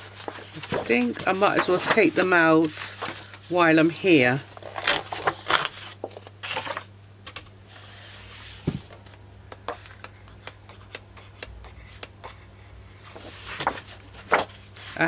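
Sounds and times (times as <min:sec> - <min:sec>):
paper rustling: 0:00.0 - 0:06.9, 0:13.0 - 0:15.0.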